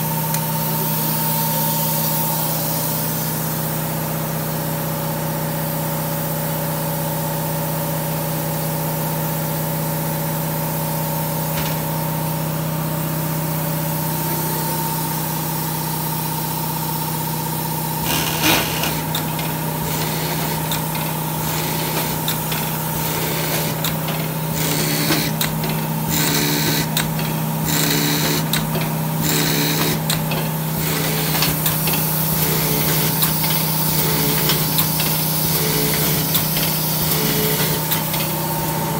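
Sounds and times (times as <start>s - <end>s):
seeder motor hum: 16.8s - 38.9s.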